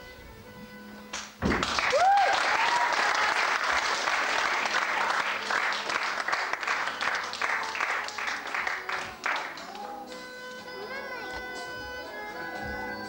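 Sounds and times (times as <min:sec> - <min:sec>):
audience applauding: 0:01.2 - 0:10.3.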